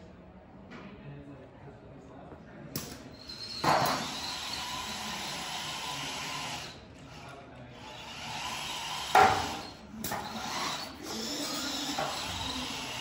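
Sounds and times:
electric motors whining: 7.8s - 13.0s.

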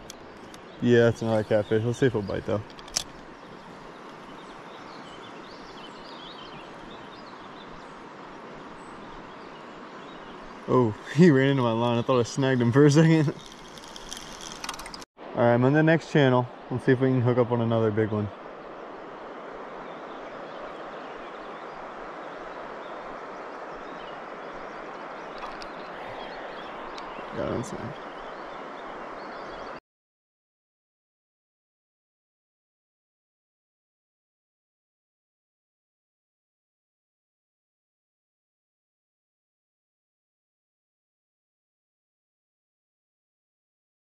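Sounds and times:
faint birdsong chirps: 0.0s - 29.8s
steady outdoor hiss: 0.0s - 29.8s
faint clicks: 13.3s - 15.0s, 24.9s - 25.9s
river water rushing: 18.3s - 29.8s.

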